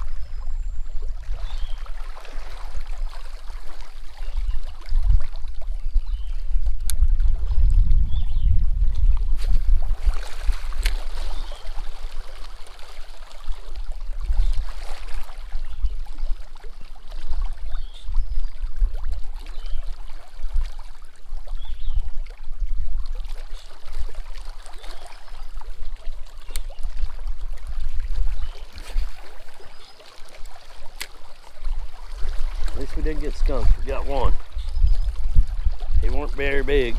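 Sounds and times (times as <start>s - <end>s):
wind buffeting the microphone: 0.0s - 29.6s, 31.5s - 36.9s
small waves splashing on rocks: 9.3s - 17.4s, 23.2s - 36.9s.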